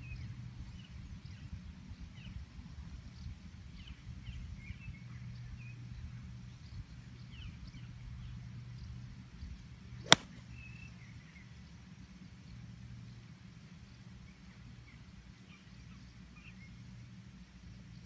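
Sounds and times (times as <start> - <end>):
golf club striking ball: 10.1 - 10.4.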